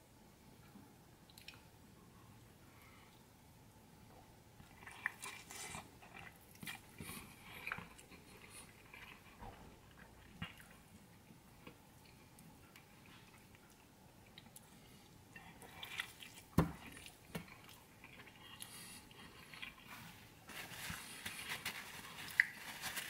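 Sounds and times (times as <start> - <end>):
person chewing: 4.6 - 11.0, 11.6 - 20.3.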